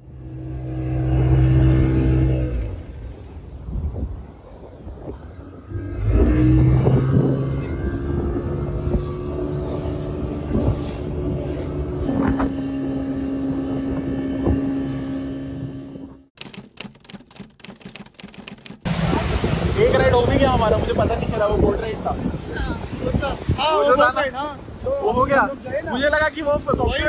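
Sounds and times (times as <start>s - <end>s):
motorboat engine running: 0.0s - 3.7s, 5.4s - 19.6s
water rushing past hull: 0.0s - 15.0s, 18.4s - 27.0s.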